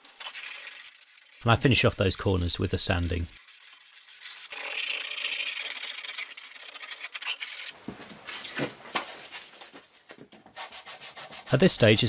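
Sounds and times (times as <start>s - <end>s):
sandpaper rubbing wood: 0.2s - 7.7s, 10.6s - 11.7s.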